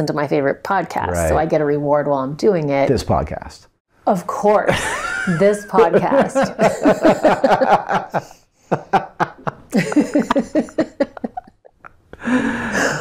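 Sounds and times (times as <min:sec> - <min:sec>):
man and woman laughing: 0:04.7 - 0:13.0.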